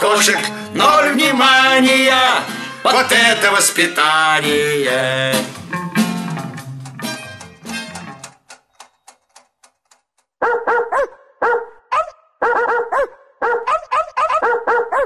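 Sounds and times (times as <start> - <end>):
song: 0.0 - 8.4
dog barking high yaps: 10.4 - 15.0.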